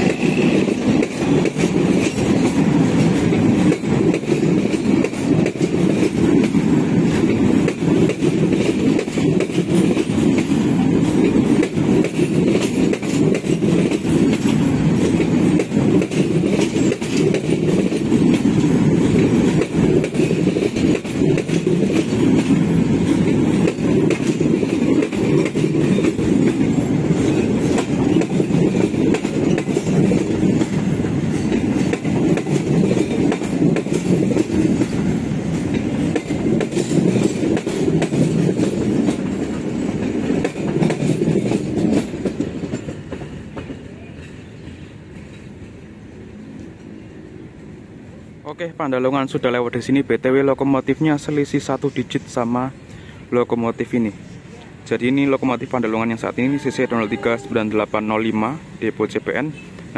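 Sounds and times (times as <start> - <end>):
train wheels clattering over rail joints: 0.0 - 45.8.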